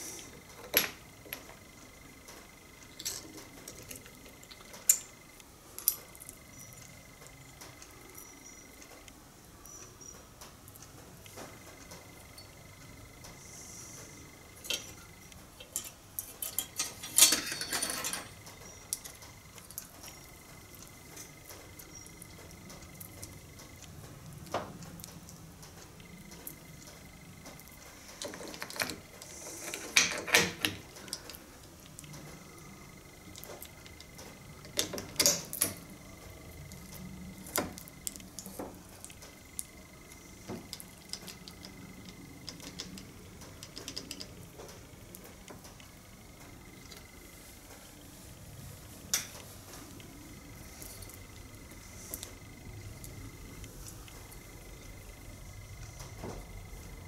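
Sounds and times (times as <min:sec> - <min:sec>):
metal parts clicking and rattling: 0:02.8 - 0:05.2, 0:15.6 - 0:20.2, 0:28.1 - 0:31.4
metal clattering: 0:15.7 - 0:18.4.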